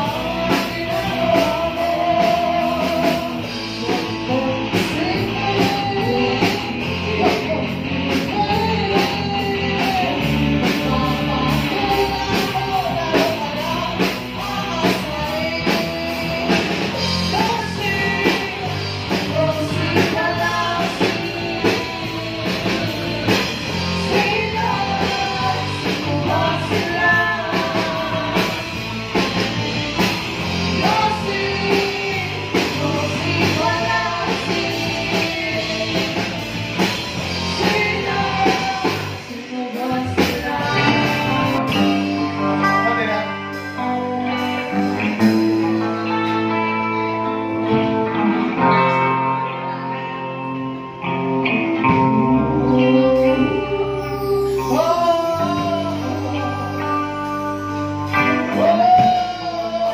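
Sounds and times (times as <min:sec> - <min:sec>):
people singing: 0:00.0 - 0:43.2, 0:51.8 - 0:59.9
drum kit beat: 0:00.0 - 0:47.1
bass guitar: 0:00.0 - 0:59.9
electric guitars: 0:00.0 - 0:59.9.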